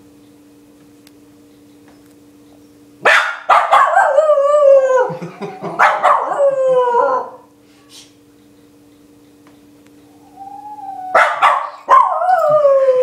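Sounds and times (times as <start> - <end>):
small dog barking: 3.0 - 4.2, 5.8 - 6.4, 11.1 - 12.5
dog howling: 3.7 - 7.5, 10.1 - 13.0.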